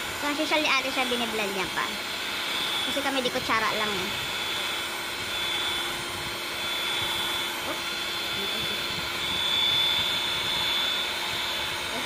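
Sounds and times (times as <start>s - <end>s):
immersion blender whining: 0.0s - 12.0s.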